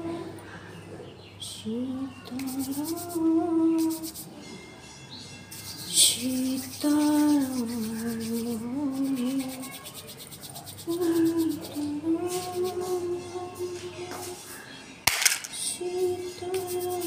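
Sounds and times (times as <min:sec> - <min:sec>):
hands rubbing: 0:02.4 - 0:03.2, 0:03.8 - 0:04.3, 0:05.5 - 0:13.0
woman humming: 0:10.9 - 0:14.2.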